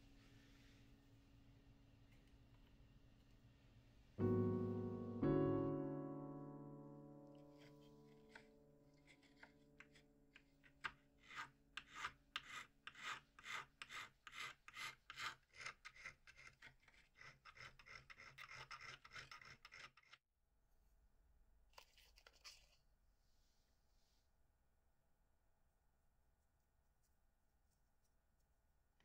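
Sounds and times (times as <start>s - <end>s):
file scraping metal: 7.4s - 20.2s.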